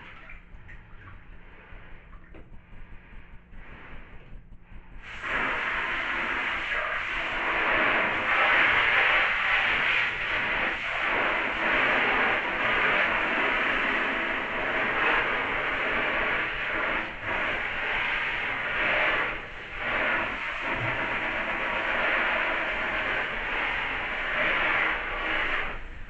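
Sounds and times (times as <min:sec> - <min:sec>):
shower spray hissing on jacket: 0:05.0 - 0:25.9.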